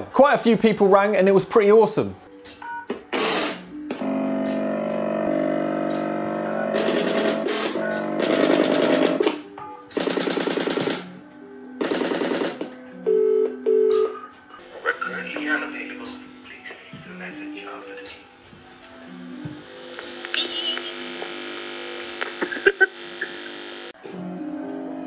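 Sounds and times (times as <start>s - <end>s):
sustained tones: 4.0s - 9.2s
telephone ringing tone: 11.9s - 14.2s
steady hum: 14.6s - 24.0s.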